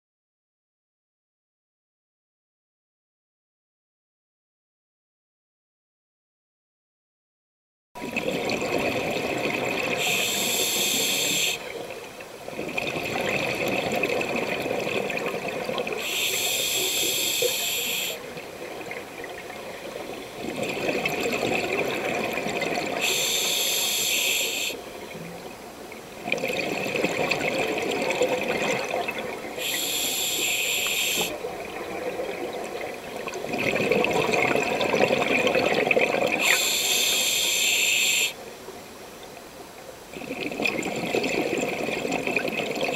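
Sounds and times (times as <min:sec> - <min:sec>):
regulator hissing inhalations: 0:10.0 - 0:11.6, 0:16.0 - 0:18.2, 0:23.0 - 0:24.8, 0:29.6 - 0:31.4, 0:36.4 - 0:38.4.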